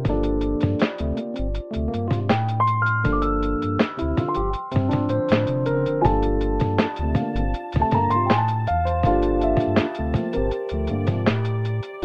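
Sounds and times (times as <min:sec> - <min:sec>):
bass line: 0:00.0 - 0:12.0
held keyboard notes: 0:00.0 - 0:12.0
regular percussion: 0:00.0 - 0:12.0.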